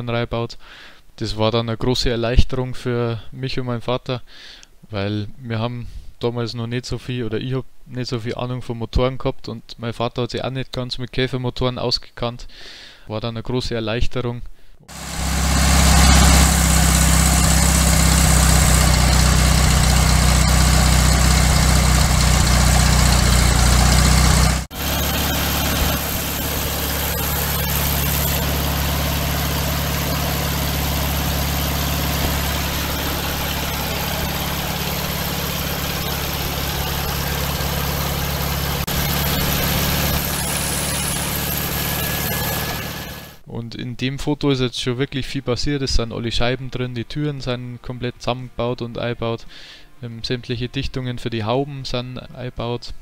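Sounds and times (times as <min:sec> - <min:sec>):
car engine idling: 0:14.9 - 0:43.4.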